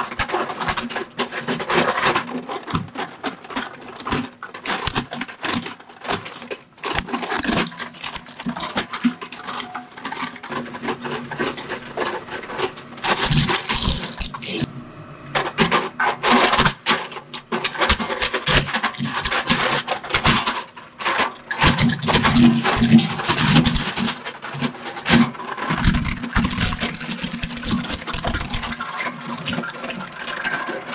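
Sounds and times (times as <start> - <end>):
plastic cracking in shredder: 0.0 - 14.7, 15.3 - 30.9
shredder machine drone: 9.6 - 20.6.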